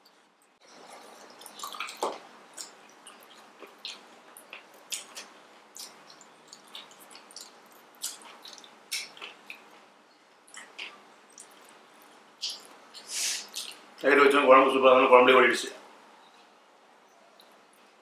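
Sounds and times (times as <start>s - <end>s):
wet chewing and lip smacks: 0.6s - 9.8s, 10.4s - 14.0s.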